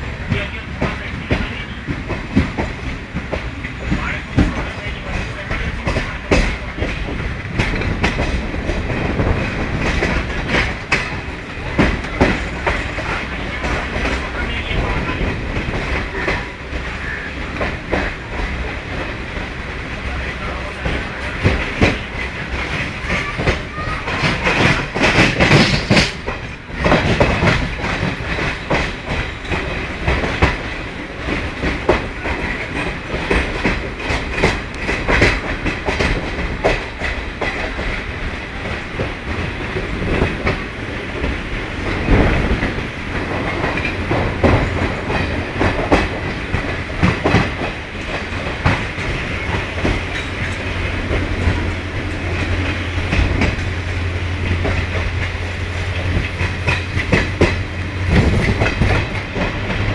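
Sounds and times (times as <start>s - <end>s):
train rumble: 0.0s - 59.9s
train wheels clacking over rail joints: 0.0s - 59.9s.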